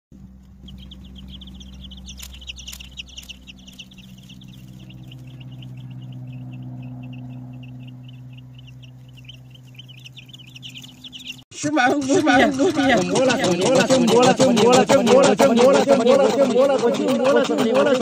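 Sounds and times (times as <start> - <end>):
steady low hum: 0.2 - 11.4
chicks peeping: 0.2 - 18.0.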